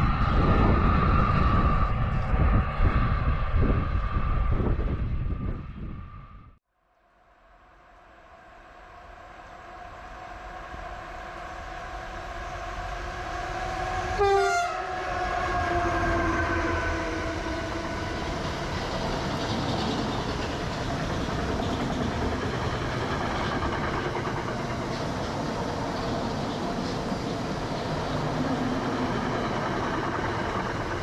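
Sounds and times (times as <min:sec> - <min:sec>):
electric train passing: 0:00.0 - 0:06.5, 0:07.1 - 0:31.0
train horn blast: 0:10.9 - 0:17.7
wheel clatter over rail joints: 0:17.9 - 0:31.0.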